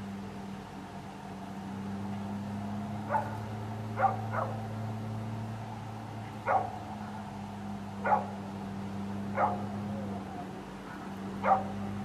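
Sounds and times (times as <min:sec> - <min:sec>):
dog barking: 0:03.1 - 0:03.4, 0:04.0 - 0:04.6, 0:06.4 - 0:07.2, 0:08.0 - 0:08.4, 0:09.3 - 0:10.1, 0:10.9 - 0:11.9.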